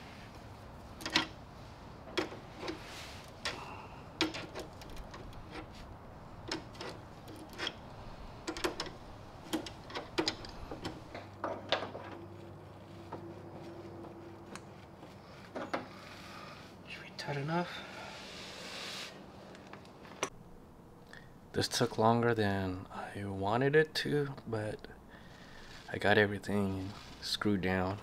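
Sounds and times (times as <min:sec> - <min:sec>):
faint steady hum: 0:00.0 - 0:28.0
hand tools tapping metal: 0:08.4 - 0:12.2.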